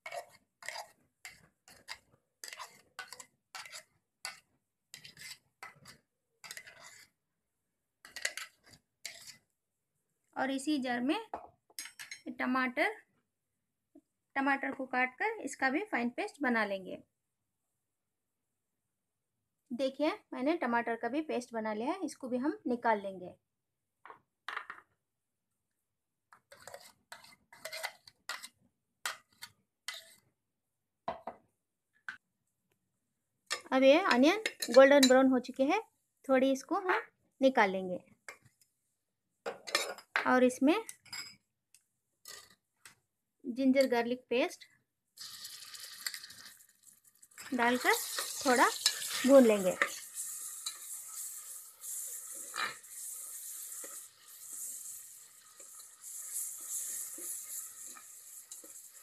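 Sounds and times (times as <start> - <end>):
metal spoon scraping steel jar: 0.0 - 7.1, 8.0 - 9.4, 26.5 - 28.5, 29.1 - 30.2, 47.4 - 55.0, 55.6 - 59.0.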